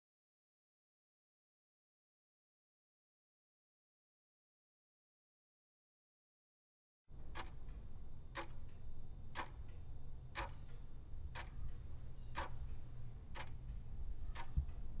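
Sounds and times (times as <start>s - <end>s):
clock ticking: 7.1s - 15.0s
low steady hum: 7.1s - 15.0s.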